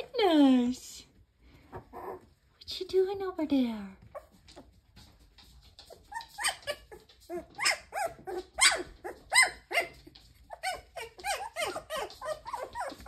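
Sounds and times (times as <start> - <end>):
puppy yipping: 5.8 - 13.0.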